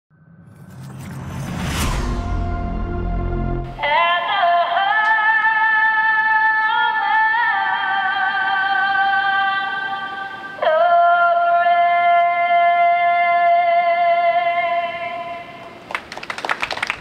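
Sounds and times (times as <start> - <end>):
low rumble: 0.1 - 4.0
long high sustained note: 0.6 - 4.9.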